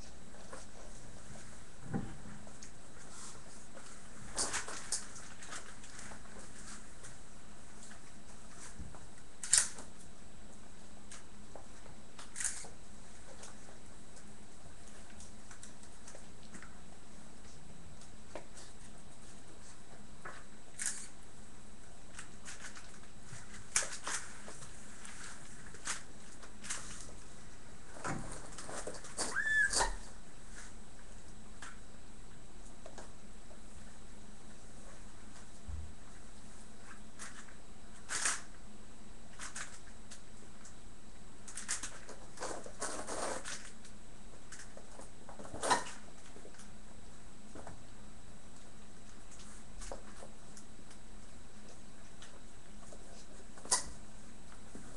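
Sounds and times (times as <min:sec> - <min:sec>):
faint steady hum: 0:00.0 - 0:54.9
puppy paws clicking on floor: 0:02.4 - 0:21.2.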